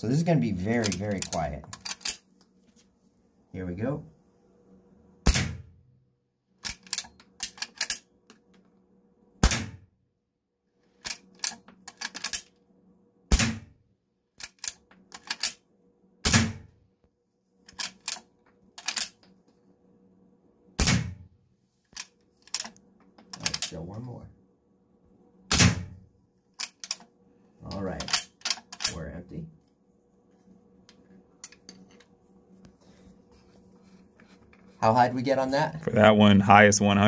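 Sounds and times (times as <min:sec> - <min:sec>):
suppressed rifle shots: 0:05.3 - 0:05.6
rifle lever clicking: 0:26.6 - 0:27.0.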